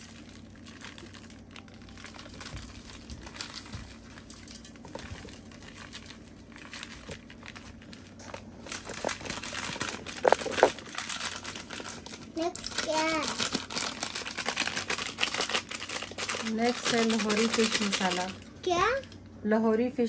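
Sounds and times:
plastic packet crinkling: 0.0 - 19.2.

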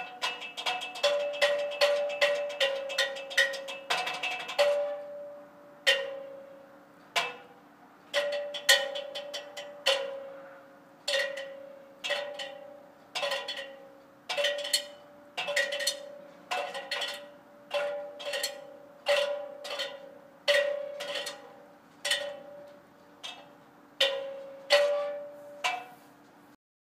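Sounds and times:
twigs striking metal stepladder: 0.0 - 26.4.

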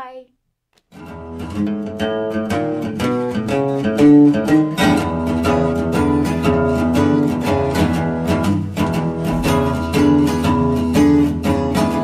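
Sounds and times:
acoustic blues guitar: 0.9 - 12.0.

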